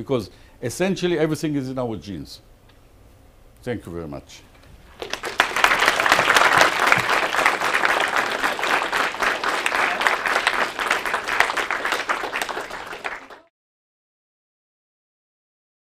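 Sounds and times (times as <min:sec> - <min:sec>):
audience applauding: 0:04.9 - 0:13.5.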